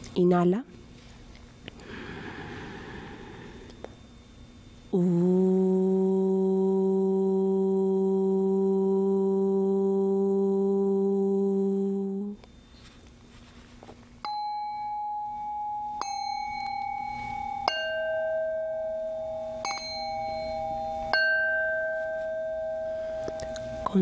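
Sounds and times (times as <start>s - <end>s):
singing bowls ringing: 1.9s - 5.1s, 12.2s - 24.0s
person chanting a long vowel: 4.9s - 12.4s.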